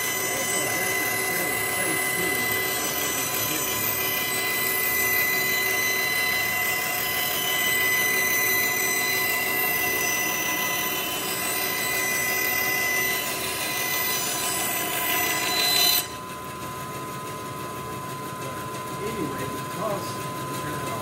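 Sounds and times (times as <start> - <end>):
bandsaw cutting wood: 0.0 - 16.3.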